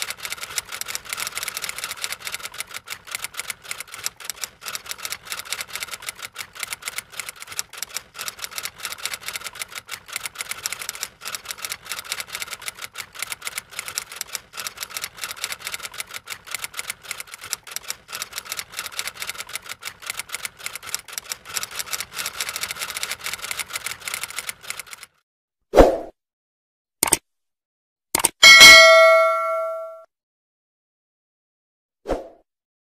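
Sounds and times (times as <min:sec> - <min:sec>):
rapid keyboard typing: 0:00.0 - 0:25.2.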